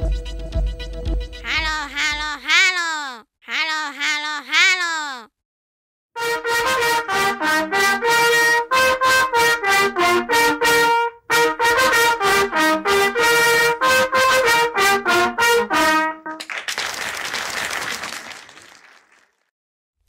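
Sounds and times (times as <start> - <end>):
trumpet playing lively tune: 6.2 - 16.4.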